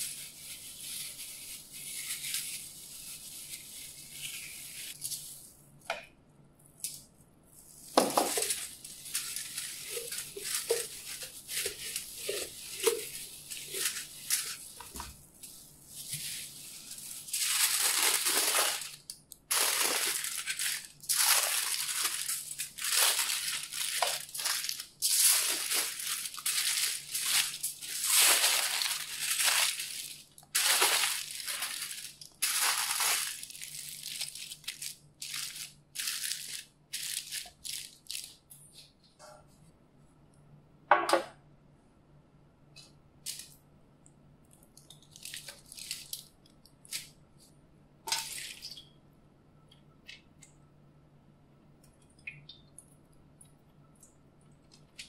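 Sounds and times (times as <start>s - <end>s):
aluminium foil crinkling: 0.0s - 5.6s, 6.8s - 38.9s, 44.8s - 47.2s
hands rustling foil: 0.0s - 5.6s, 6.8s - 38.9s.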